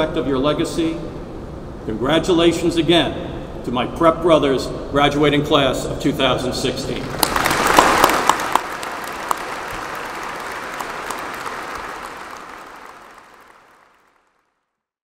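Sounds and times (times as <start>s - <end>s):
audience applauding: 7.0s - 14.4s.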